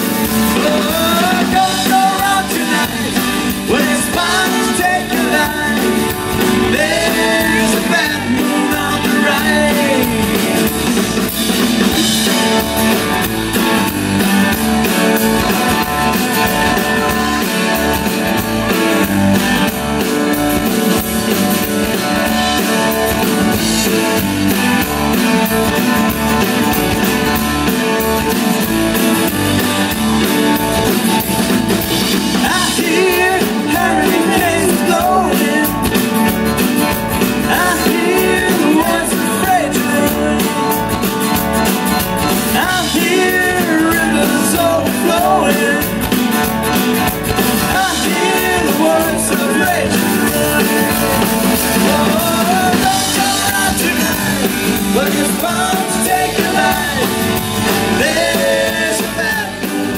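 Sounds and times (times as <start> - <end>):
acoustic and electric guitars: 0.0 - 59.9
drums: 0.0 - 59.9
person singing: 0.3 - 12.7, 32.3 - 36.3, 37.3 - 40.9, 42.4 - 46.2, 47.5 - 59.9.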